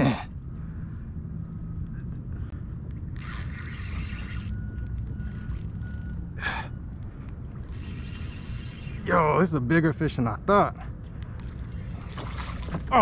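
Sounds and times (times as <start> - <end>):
steady low hum: 0.0 - 13.0
spinning reel working: 3.1 - 6.3, 7.6 - 9.5.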